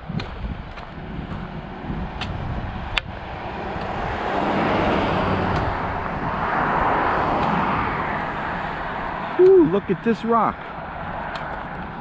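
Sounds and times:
pickup truck driving past: 0:01.5 - 0:09.4.

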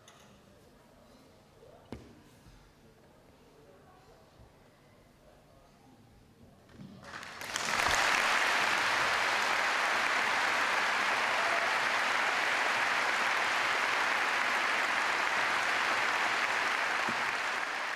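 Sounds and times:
audience applauding: 0:07.0 - 0:17.9.

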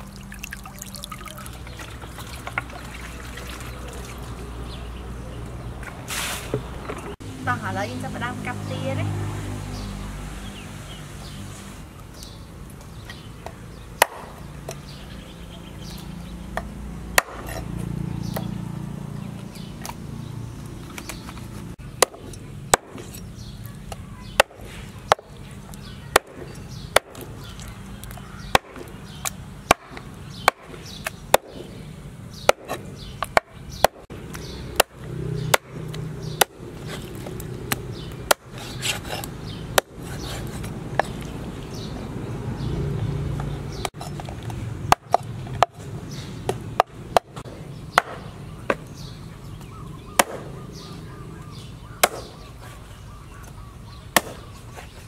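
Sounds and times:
cleaver chopping on wooden board: 0:14.0 - 0:14.5, 0:16.6 - 0:17.6, 0:22.0 - 0:23.2, 0:23.9 - 0:25.4, 0:28.5 - 0:31.7, 0:32.4 - 0:34.0, 0:46.5 - 0:48.9, 0:50.2 - 0:50.6, 0:51.9 - 0:52.5, 0:54.2 - 0:54.5.

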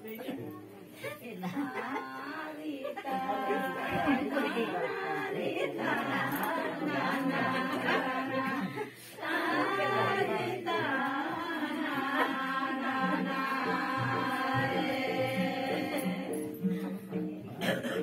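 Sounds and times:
women singing together: 0:01.0 - 0:18.0.

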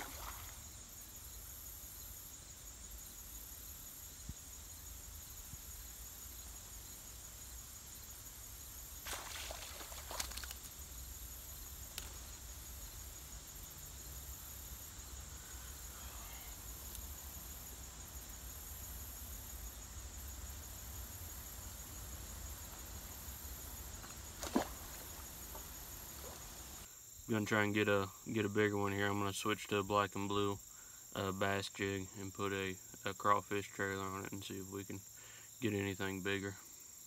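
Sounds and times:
high-pitched insect drone: 0:00.0 - 0:21.8.

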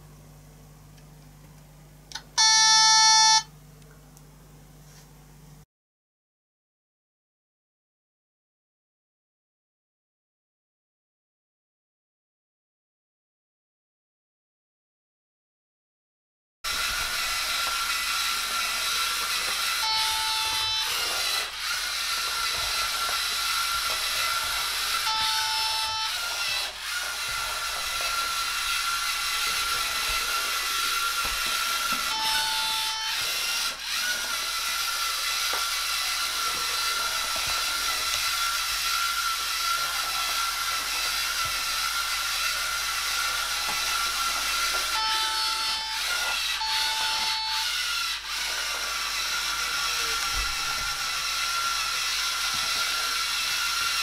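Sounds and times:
short beeps: 0:02.4 - 0:03.5, 0:19.8 - 0:20.9, 0:32.2 - 0:33.2, 0:45.0 - 0:46.0, 0:46.6 - 0:47.7
motor clicks: 0:16.7 - 0:54.0
robot motors whining: 0:16.7 - 0:54.0.

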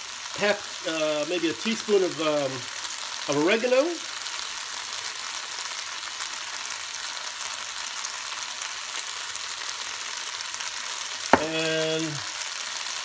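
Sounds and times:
rice sizzling in a pan: 0:00.0 - 0:13.0.

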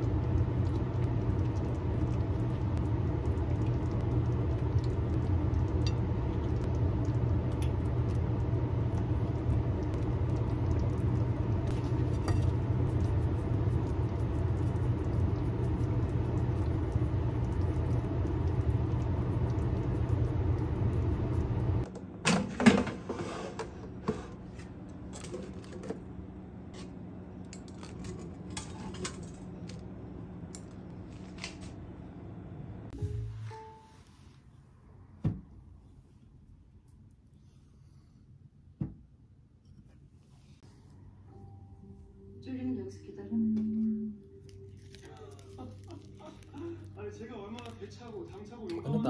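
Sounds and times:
machine hum: 0:00.0 - 0:33.6
kitchenware clicks and clatter: 0:22.2 - 0:24.4, 0:25.1 - 0:26.0, 0:27.6 - 0:29.8.

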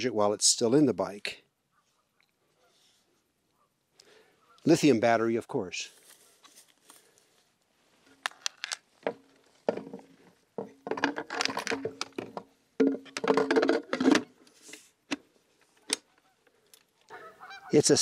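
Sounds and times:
battery clicking into mount: 0:08.2 - 0:08.8.

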